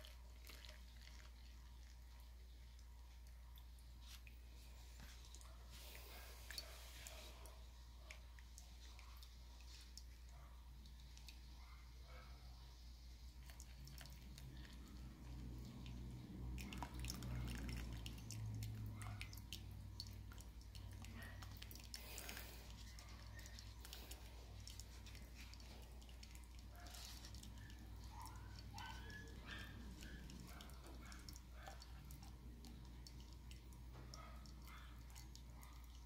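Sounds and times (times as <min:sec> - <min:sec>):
coffee dripping into mug: 0:00.0 - 0:04.4, 0:13.2 - 0:36.0
water pouring onto coffee filter: 0:00.0 - 0:07.4, 0:13.4 - 0:34.6
low steady hum: 0:00.0 - 0:36.0.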